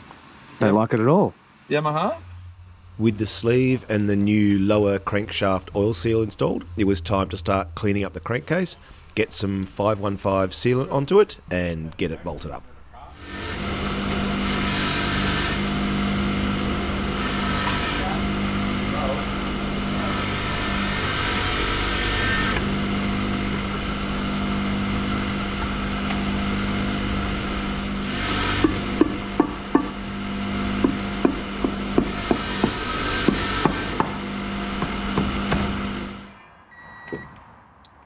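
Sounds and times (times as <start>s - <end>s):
steady hum: 0.0s - 36.4s.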